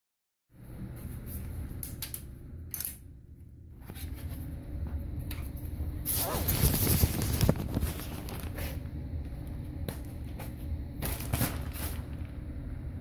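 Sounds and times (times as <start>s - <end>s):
low hum: 0.5s - 13.0s
rustling: 6.1s - 8.8s.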